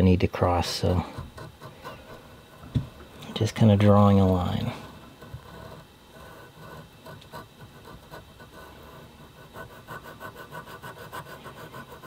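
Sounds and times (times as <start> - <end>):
file scratching across handle: 0.5 - 12.0.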